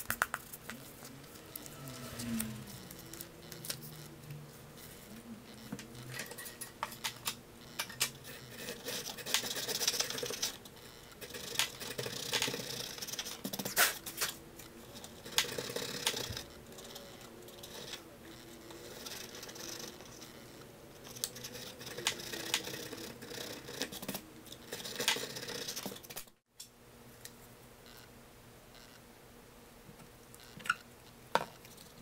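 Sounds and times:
sharp clicks and ticks: 9.0 - 14.0, 14.6 - 18.0, 21.0 - 27.4.

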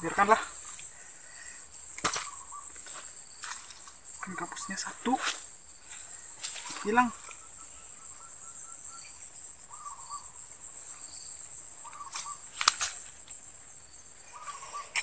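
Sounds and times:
high-pitched insect drone: 0.0 - 15.0
sharp click: 12.2 - 13.0.

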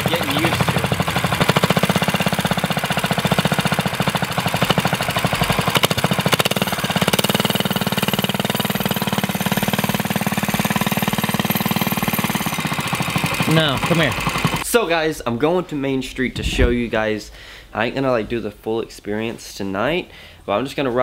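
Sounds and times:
minibike engine running: 0.0 - 14.6.

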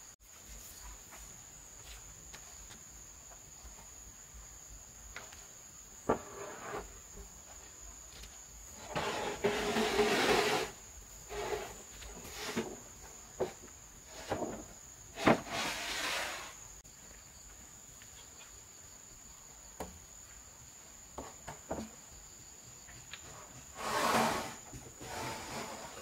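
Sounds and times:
insects droning: 0.0 - 26.0
metal sheet scraping on wood: 6.1 - 7.0, 8.8 - 12.8, 14.1 - 16.6, 23.7 - 26.0.

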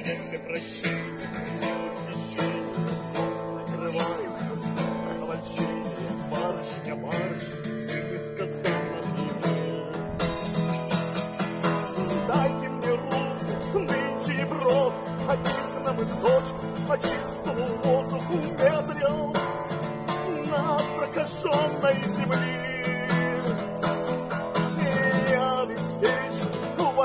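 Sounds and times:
acoustic guitar strumming chords: 0.0 - 27.0.

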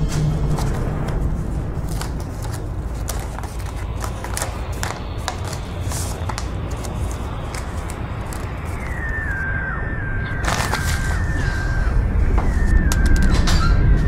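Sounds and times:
paper rustling and crackling: 0.0 - 9.4, 10.4 - 11.6
low steady rumble: 0.0 - 14.0.

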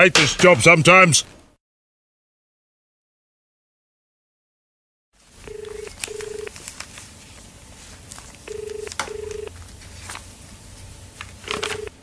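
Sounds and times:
telephone ringing: 5.4 - 6.6, 8.4 - 9.6, 11.4 - 12.0.

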